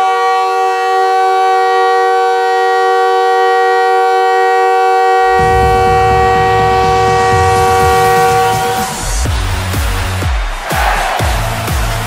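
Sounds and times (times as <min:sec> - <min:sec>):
goal horn chord: 0:05.2 - 0:10.1
low music beat: 0:05.3 - 0:10.7.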